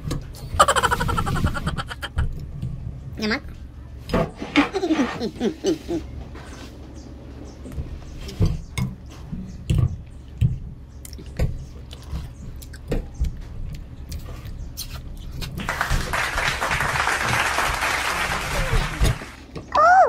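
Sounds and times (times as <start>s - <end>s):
chewing: 11.0s - 15.5s.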